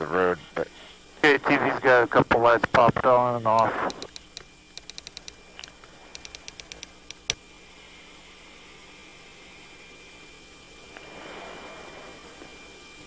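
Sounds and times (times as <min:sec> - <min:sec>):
radio static hiss: 0:01.2 - 0:04.2
radio clicks: 0:03.5 - 0:07.4.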